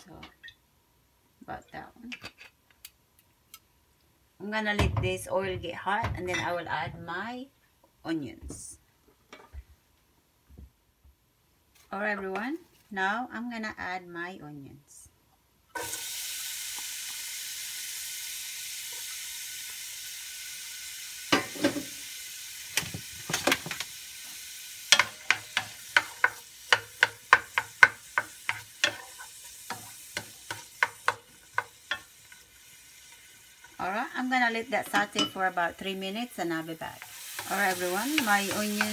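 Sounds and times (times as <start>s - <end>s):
onion sizzling in hot oil: 15.7s - 38.9s.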